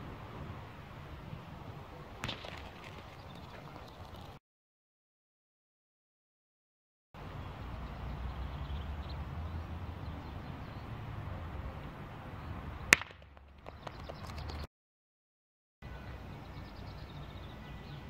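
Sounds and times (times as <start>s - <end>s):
wind rumble on microphone: 0.0s - 4.4s
boules clicking on gravel: 2.2s - 4.4s, 12.9s - 14.6s.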